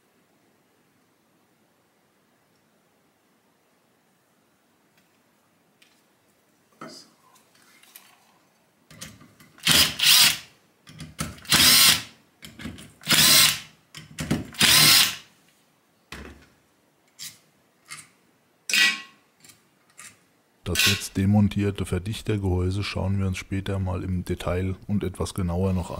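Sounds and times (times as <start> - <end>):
power drill running in bursts: 9.6 - 10.4, 11.5 - 12.0, 13.0 - 13.6, 14.6 - 15.2.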